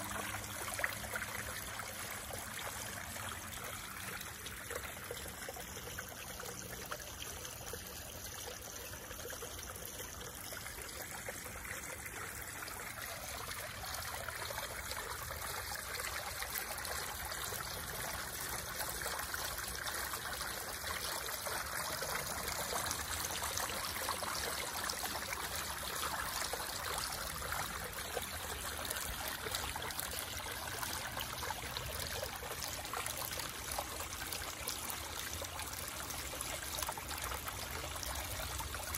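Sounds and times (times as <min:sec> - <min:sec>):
water trickling and splashing: 0:00.0 - 0:38.9.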